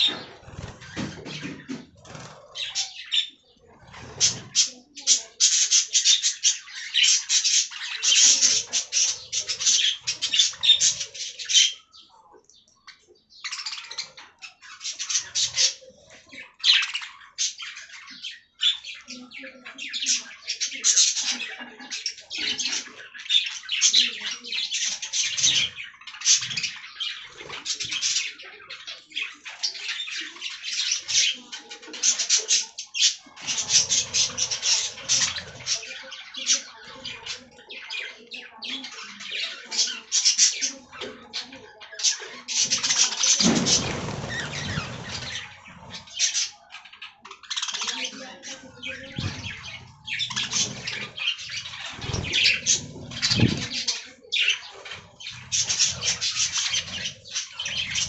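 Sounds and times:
budgerigars chattering and chirping: 0.0s - 58.0s.

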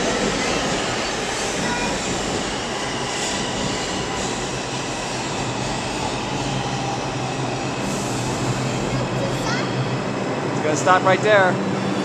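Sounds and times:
subway train running on rails: 0.0s - 12.0s.

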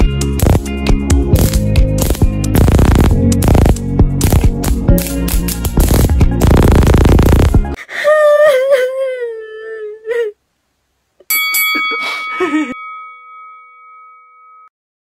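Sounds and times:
clicks: 1.4s - 7.5s
woman crying wail: 7.8s - 10.4s, 11.9s - 12.8s
woman sobbing: 7.8s - 10.4s, 11.8s - 12.8s
bell-like notification ding: 11.3s - 14.7s.

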